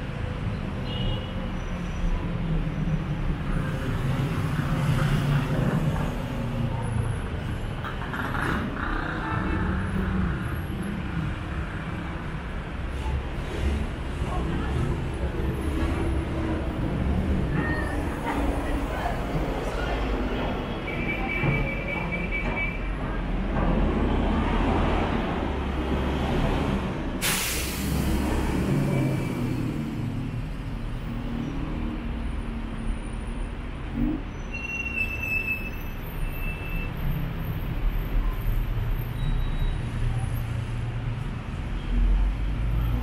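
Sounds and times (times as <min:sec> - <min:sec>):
low traffic rumble: 0:00.0 - 0:43.0
street noise: 0:00.0 - 0:43.0
vehicle engines passing: 0:01.7 - 0:20.9, 0:23.0 - 0:34.3.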